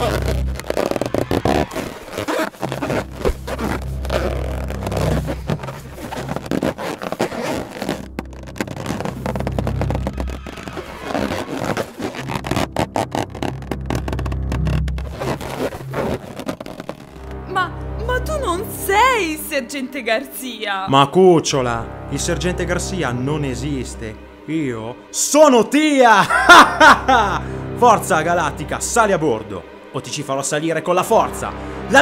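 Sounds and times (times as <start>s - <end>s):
clothing rustling: 0.0s - 17.2s
zipper sounds: 0.0s - 17.4s.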